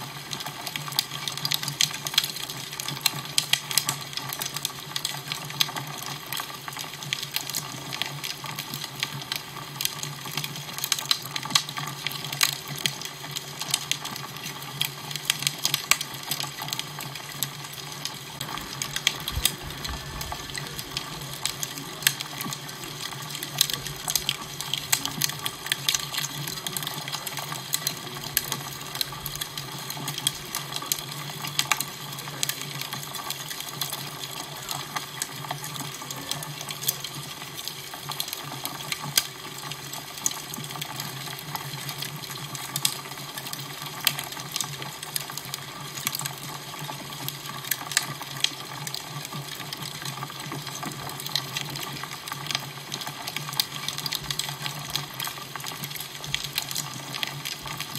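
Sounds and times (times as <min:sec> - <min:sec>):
fire crackling and popping: 0:00.0 - 0:57.9
low steady hum: 0:18.2 - 0:29.6.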